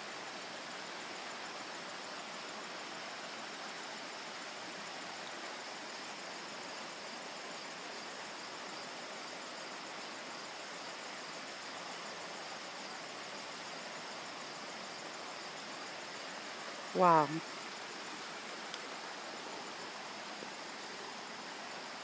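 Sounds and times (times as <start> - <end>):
insects chirring: 0.0 - 22.0
stream rushing over rocks: 0.0 - 22.0.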